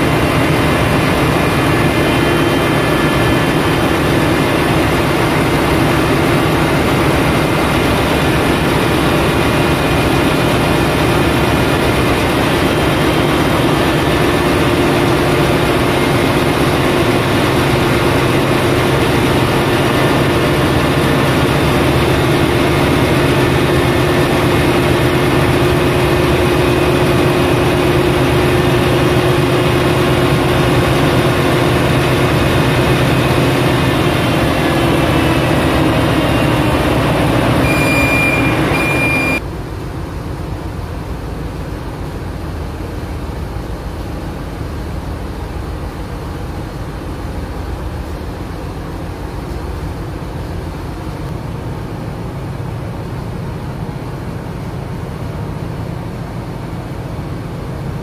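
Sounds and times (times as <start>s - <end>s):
diesel generator engine running: 0.0s - 58.0s.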